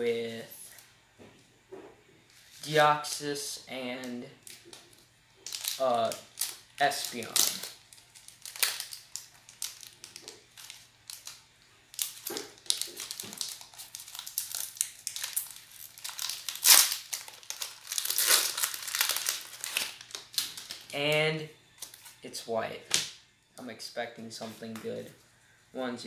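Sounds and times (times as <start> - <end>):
foil wrapper crinkling: 4.4 - 21.2.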